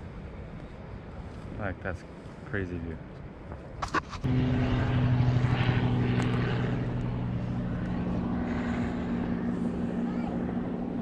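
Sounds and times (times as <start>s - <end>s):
low engine-like drone: 3.6s - 11.0s.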